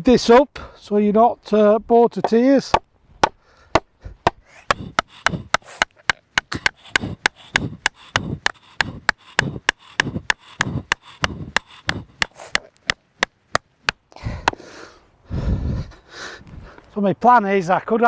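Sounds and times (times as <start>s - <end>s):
wooden stake being hammered: 2.2s - 14.6s.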